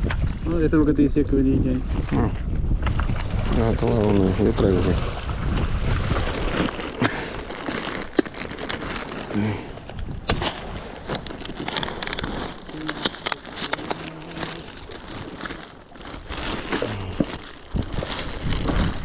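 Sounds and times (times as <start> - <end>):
plastic bags crinkling: 6.2 - 19.0.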